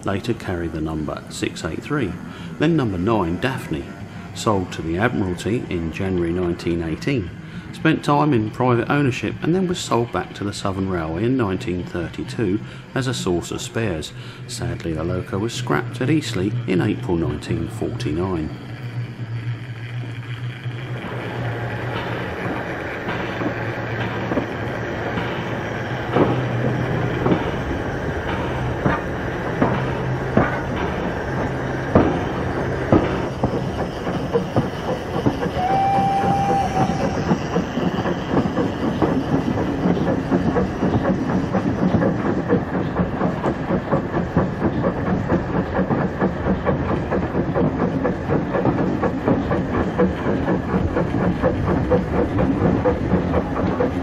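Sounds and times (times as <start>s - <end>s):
model train wheels clicking: 0.0s - 54.0s
short whistle-like tone: 35.6s - 37.2s.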